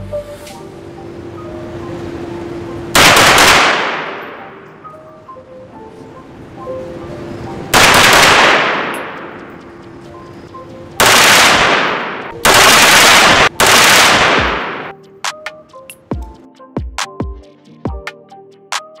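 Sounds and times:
background music with steady tones: 0:00.0 - 0:19.0
rifle shots echoing indoors: 0:03.0 - 0:04.4, 0:07.8 - 0:09.3, 0:11.0 - 0:14.9
electronic beats: 0:07.6 - 0:12.8, 0:14.2 - 0:19.0.

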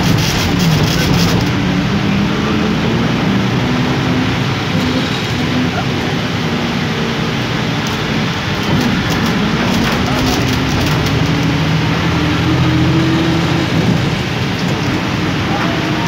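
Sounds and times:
heavy rain: 0:00.0 - 0:16.0
tyre spray on wet road: 0:07.4 - 0:16.0.

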